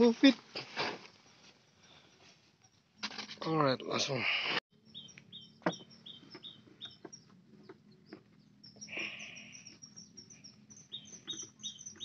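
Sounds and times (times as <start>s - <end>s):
small birds chirping: 3.8s - 12.0s.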